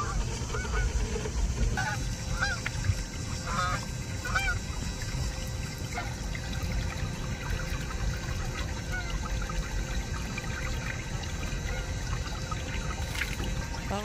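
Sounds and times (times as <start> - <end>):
geese honking: 0.0 - 1.0, 1.8 - 2.6, 3.4 - 4.6, 8.9 - 9.2.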